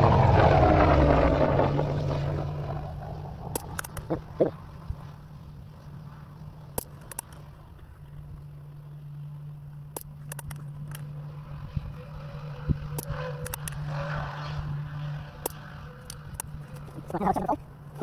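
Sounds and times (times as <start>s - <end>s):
low engine hum: 0.0s - 18.0s.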